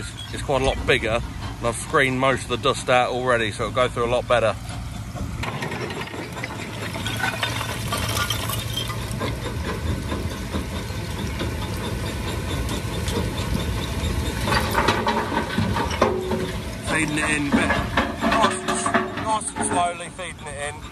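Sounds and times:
excavator engine running: 0:00.0 - 0:20.9
tractor engine running: 0:00.0 - 0:20.9
stone rattling in crusher: 0:05.4 - 0:20.0.

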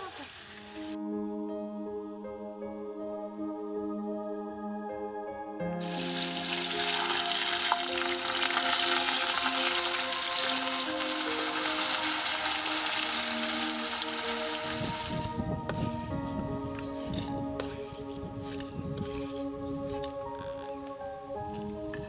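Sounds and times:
background music sustained tones: 0:00.3 - 0:22.0
plantain deep-frying in oil: 0:05.8 - 0:15.3.

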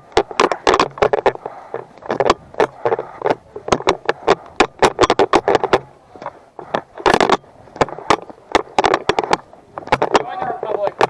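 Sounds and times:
camera rattling in mount: 0:00.0 - 0:11.0.

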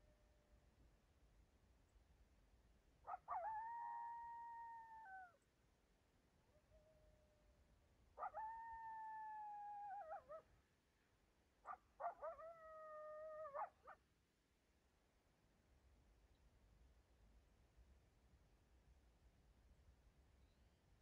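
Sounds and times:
coyote howling: 0:08.2 - 0:10.4.

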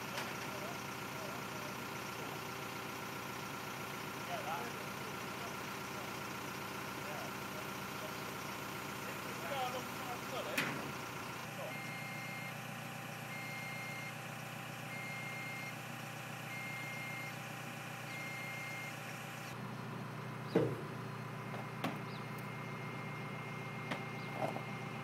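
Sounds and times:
crane engine running: 0:00.0 - 0:25.0
warning alarm long beeps: 0:11.4 - 0:19.5.

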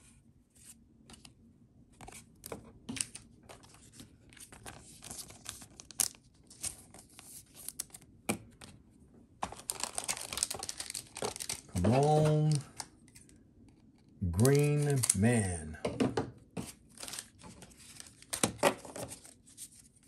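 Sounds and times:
plastic wrapper tearing and crinkling: 0:04.9 - 0:08.0, 0:09.5 - 0:12.9, 0:16.9 - 0:19.3.

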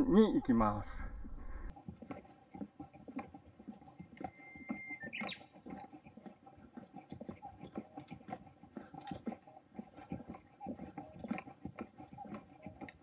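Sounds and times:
footsteps on wooden boardwalk: 0:01.7 - 0:13.0
thin high whistle: 0:04.3 - 0:05.4.

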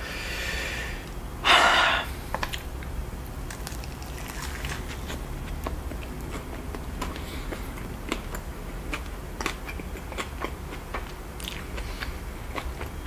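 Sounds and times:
sharp breath: 0:00.0 - 0:02.2
person biting and chewing: 0:03.5 - 0:13.0.

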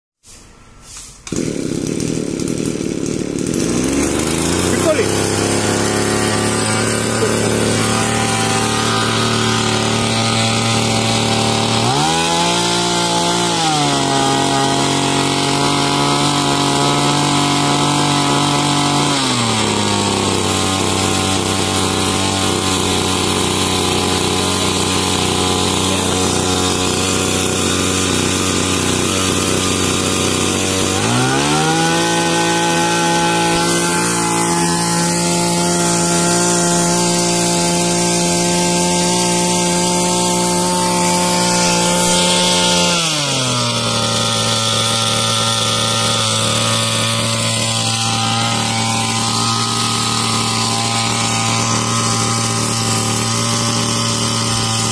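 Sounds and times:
small engine running: 0:01.3 - 0:54.9.

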